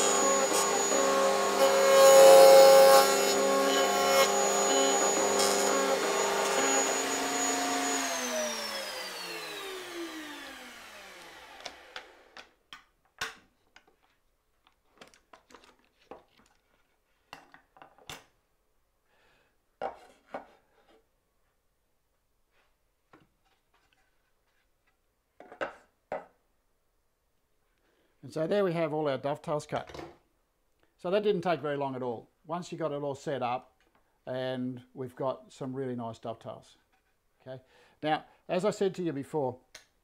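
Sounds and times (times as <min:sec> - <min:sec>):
router motor whining: 0:00.0 - 0:12.4.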